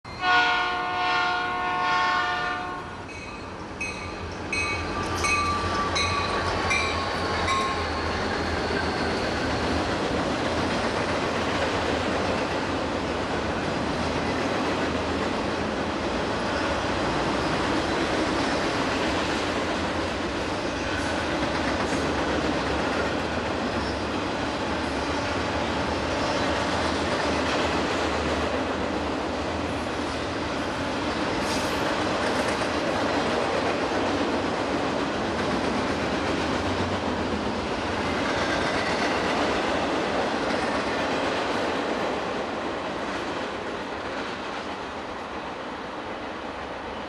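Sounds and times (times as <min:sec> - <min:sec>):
rail cars clattering: 0:00.0 - 0:47.0
locomotive air horn chord: 0:00.2 - 0:03.0.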